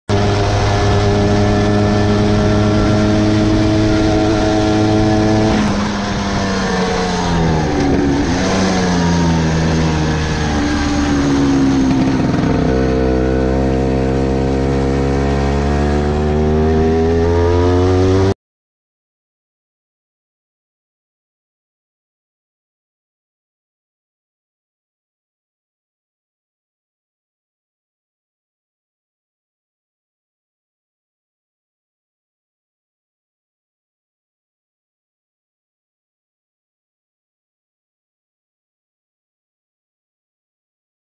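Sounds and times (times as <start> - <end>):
scooter engine running: 0.1 - 18.3.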